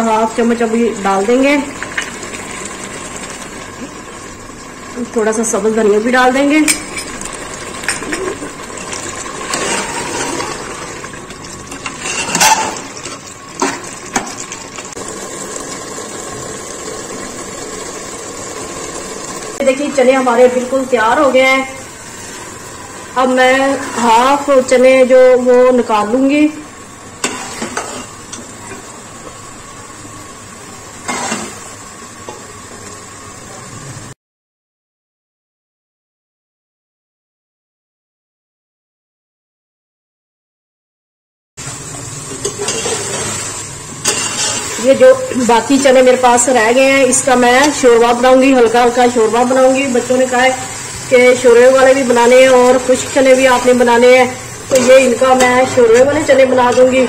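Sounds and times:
metal ladle scraping pot: 9.4s - 10.8s, 11.7s - 14.3s, 27.2s - 28.2s, 31.0s - 31.6s, 42.4s - 45.4s, 54.6s - 57.0s
ladle stirring thick curry: 42.4s - 44.8s.

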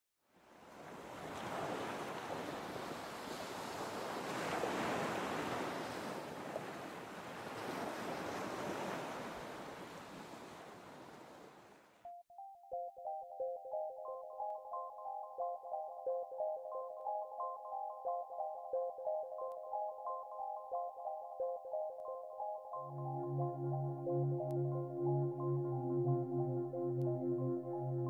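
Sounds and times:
ocean waves washing: 0.7s - 11.6s, 22.8s - 28.0s
synthesizer music notes: 12.1s - 28.0s.

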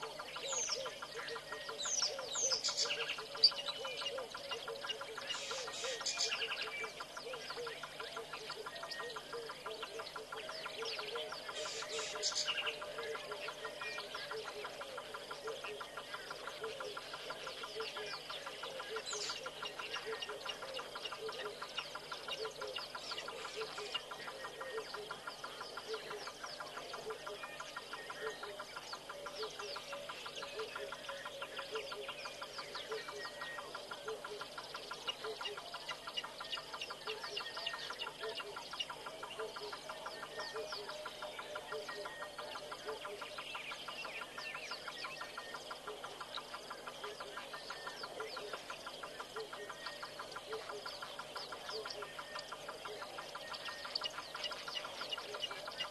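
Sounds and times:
birds chirping: 0.0s - 55.9s.

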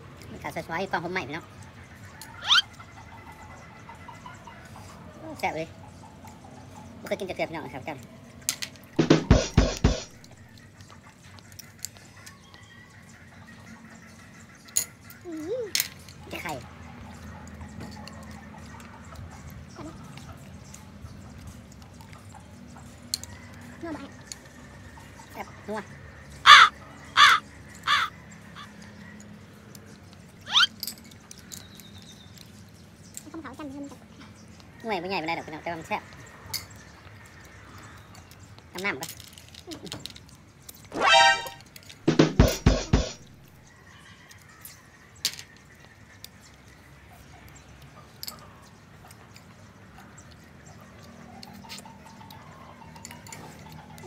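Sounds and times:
quiet eating: 9.9s - 40.9s, 43.3s - 54.0s
animal call rising in pitch: 40.9s - 41.6s
thin high tone: 40.9s - 41.7s.

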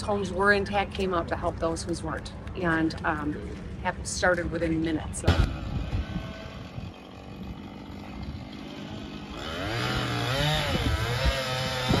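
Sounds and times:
chainsaw revving: 5.6s - 12.0s.

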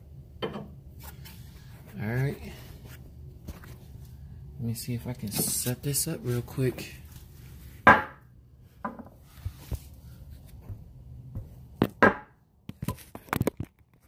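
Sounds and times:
tools knocking and clunking: 0.4s - 0.8s, 7.9s - 8.2s, 11.3s - 13.7s.

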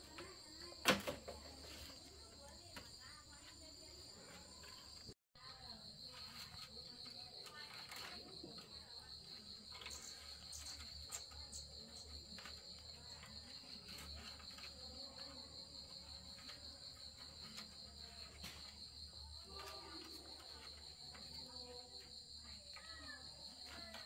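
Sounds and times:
high-pitched insect trill: 5.7s - 24.0s.

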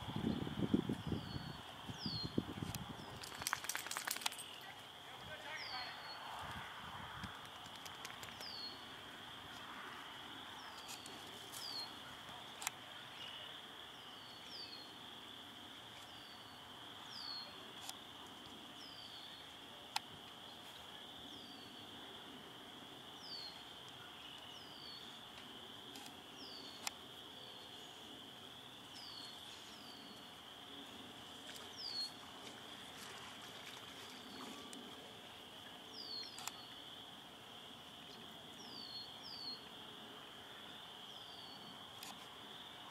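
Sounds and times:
sharp clicks: 7.2s - 8.6s.

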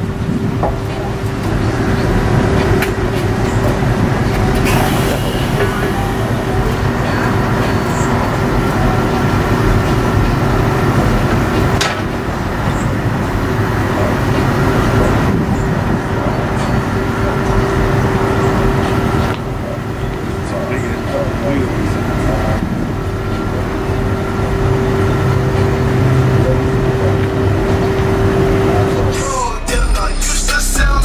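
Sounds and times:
low engine rumble: 0.0s - 31.0s.

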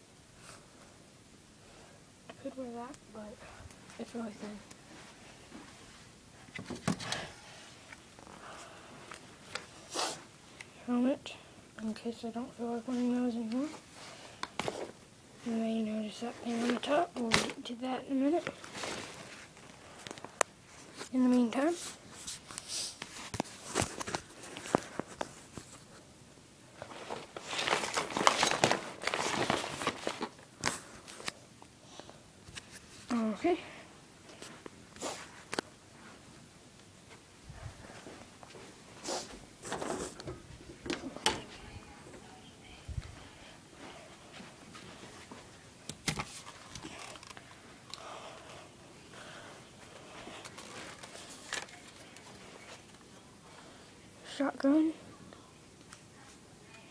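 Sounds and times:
rustling and handling noises: 2.3s - 11.2s, 11.8s - 54.9s
rustling: 18.3s - 26.1s, 26.7s - 31.4s, 49.2s - 53.6s.

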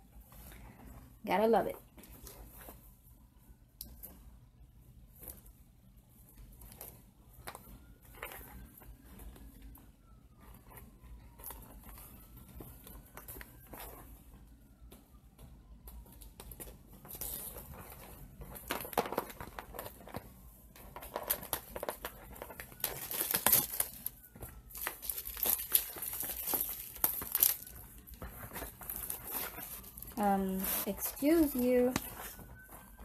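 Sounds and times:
packaging crinkling and tearing: 20.8s - 33.0s.

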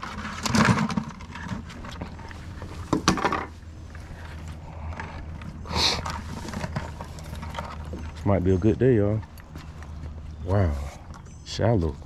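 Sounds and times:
knocks and scrapes of handling: 0.0s - 8.5s.

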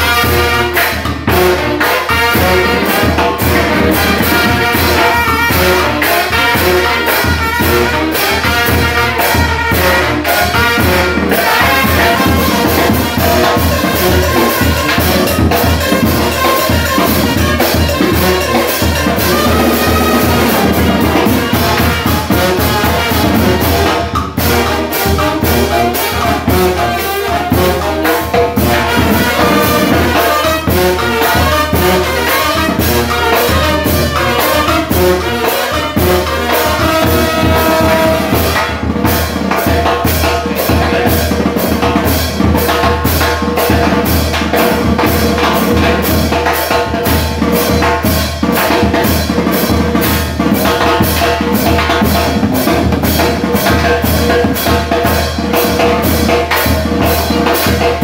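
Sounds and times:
saxophone: 0.0s - 39.2s
bass drum with cymbal: 0.0s - 58.0s
trombone: 0.0s - 58.0s
trumpet: 0.0s - 58.0s.

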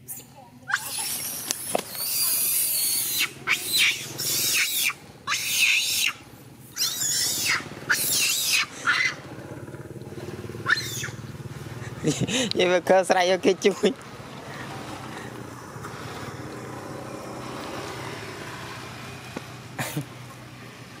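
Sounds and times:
monkey screaming: 0.1s - 9.4s, 10.6s - 11.2s.

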